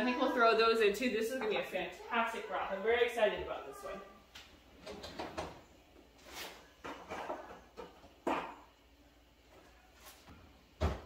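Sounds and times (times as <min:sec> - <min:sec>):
things knocking in a cupboard: 0:06.8 - 0:08.7, 0:10.8 - 0:11.0.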